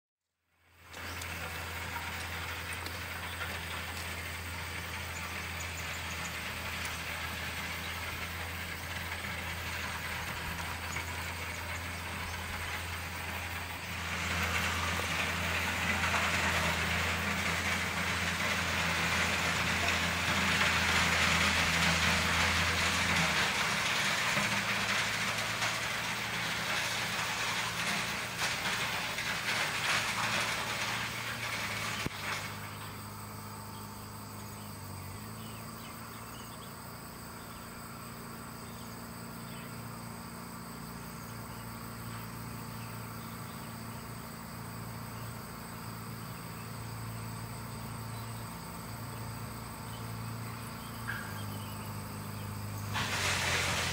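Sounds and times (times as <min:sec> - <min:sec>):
diesel engine running: 0:00.4 - 0:53.9
rushing gritty noise: 0:00.8 - 0:33.1, 0:52.5 - 0:53.9.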